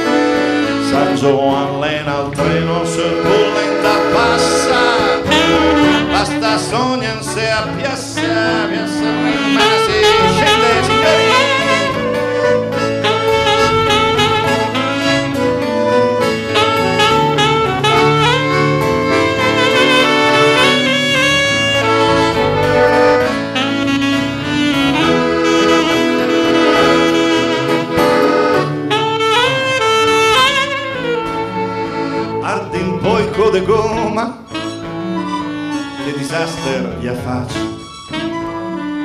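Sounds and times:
saxophone solo: 0.0s - 1.6s, 2.4s - 39.0s
strummed acoustic guitars: 0.0s - 23.6s.

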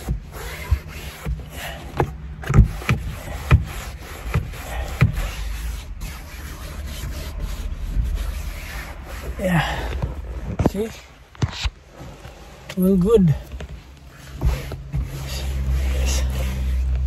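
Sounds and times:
hand patting fabric: 0.0s - 7.4s
low rumble: 4.6s - 10.6s.

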